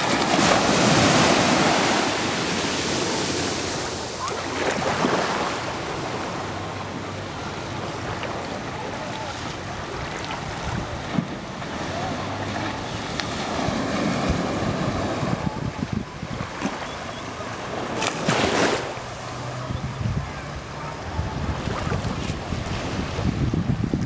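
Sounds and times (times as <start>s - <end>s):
small sea waves lapping: 0.0s - 24.0s
wind buffeting microphone: 9.1s - 18.7s, 19.3s - 24.0s.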